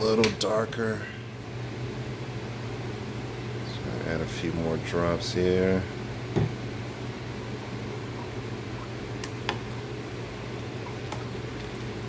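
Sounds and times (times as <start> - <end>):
steady low hum with fan hiss: 0.0 - 12.0.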